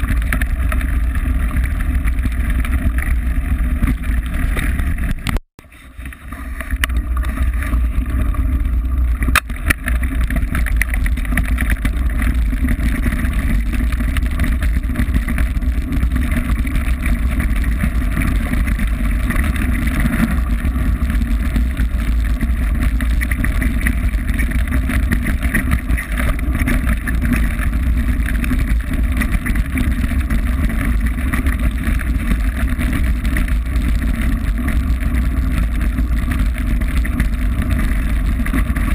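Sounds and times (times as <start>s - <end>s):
bike rolling over gravel: 0.0s - 38.9s.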